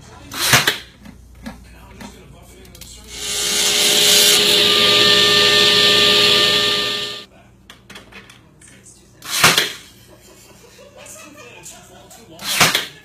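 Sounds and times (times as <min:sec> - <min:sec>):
power tool cutting wood: 0:03.1 - 0:07.3.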